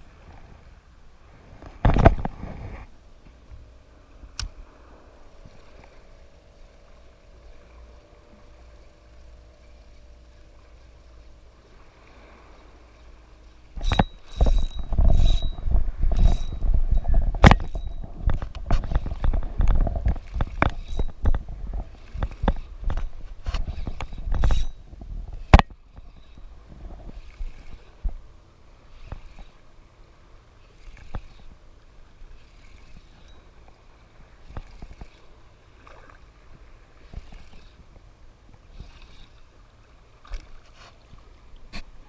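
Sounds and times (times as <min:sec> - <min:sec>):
wind rumble on microphone: 0:00.0 - 0:42.0
fishing reel knocks and clicks: 0:13.8 - 0:21.4, 0:22.2 - 0:24.8.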